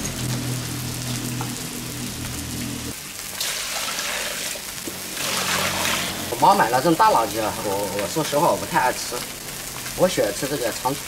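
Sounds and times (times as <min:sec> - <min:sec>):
fish frying in a pan: 0:00.0 - 0:11.0
water splashing into basin: 0:05.2 - 0:06.2.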